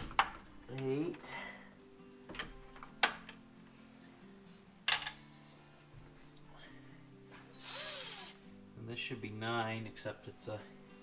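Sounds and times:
faint background music: 0.0s - 11.0s
metal tool clinking on metal: 4.9s - 5.2s.

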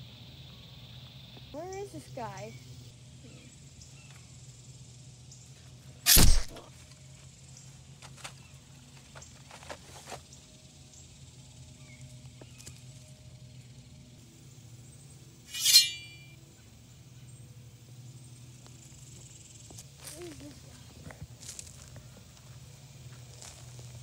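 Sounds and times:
metallic ringing swish: 15.5s - 16.4s.

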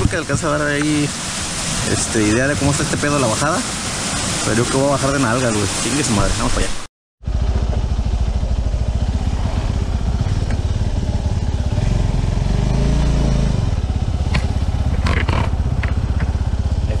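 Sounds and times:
motorcycle engine running: 7.2s - 17.0s.

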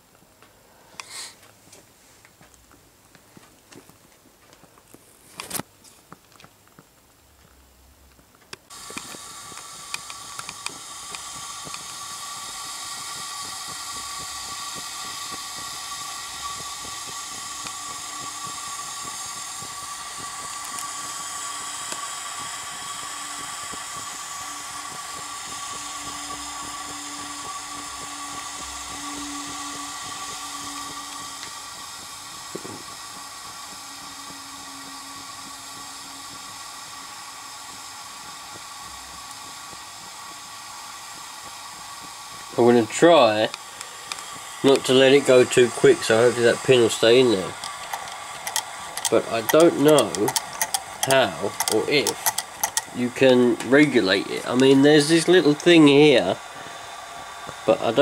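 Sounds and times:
steam boiler hissing: 0.0s - 2.5s, 8.6s - 58.0s
steady high note: 8.7s - 37.4s, 42.6s - 58.0s.

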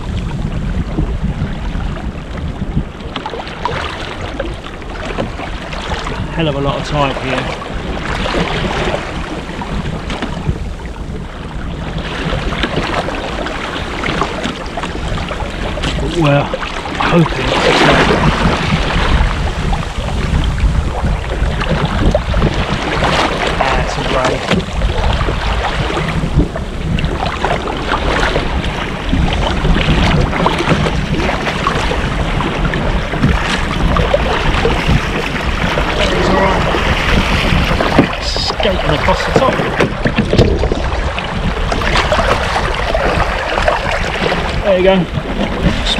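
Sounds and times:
water slapping kayak hull: 0.0s - 45.9s
wind buffeting microphone: 0.0s - 45.9s
short splashes: 15.5s - 19.4s.

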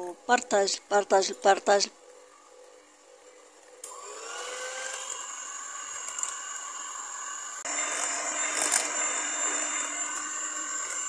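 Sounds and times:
electric hand mixer whine: 3.8s - 11.0s.

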